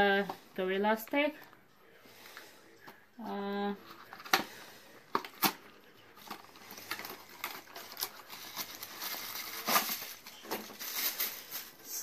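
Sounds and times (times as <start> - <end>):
cardboard rustling: 3.8 - 11.8.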